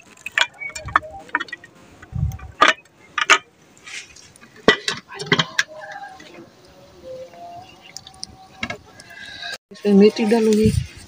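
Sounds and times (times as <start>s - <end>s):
metal pots knocking and clinking: 2.5s - 3.5s, 4.5s - 6.0s.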